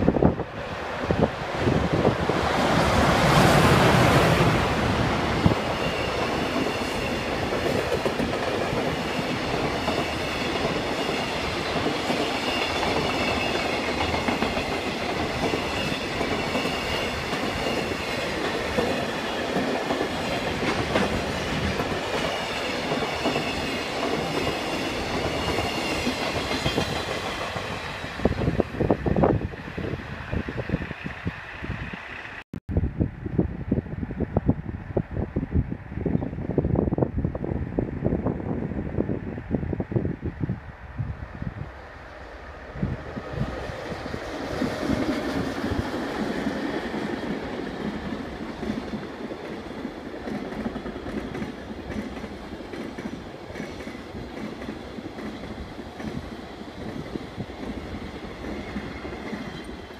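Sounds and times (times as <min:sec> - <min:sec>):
locomotive rushing past: 0:00.1 - 0:32.4.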